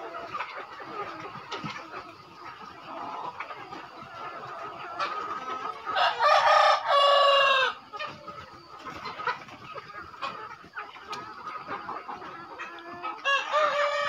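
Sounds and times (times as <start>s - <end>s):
chickens clucking faintly: 0.0s - 14.0s
rooster crowing: 6.0s - 7.8s.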